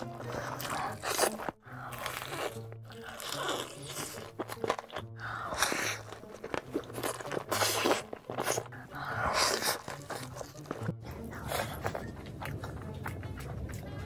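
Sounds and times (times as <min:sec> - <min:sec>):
wet chewing: 0:00.0 - 0:14.0
loud noodle slurps: 0:00.3 - 0:10.8.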